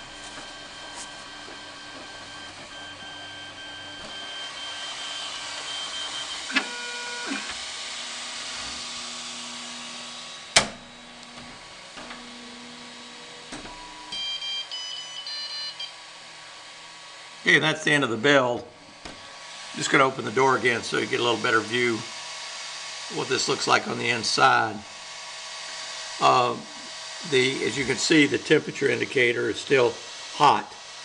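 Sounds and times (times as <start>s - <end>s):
stepper motors whining: 0.0s - 16.1s, 23.0s - 30.9s.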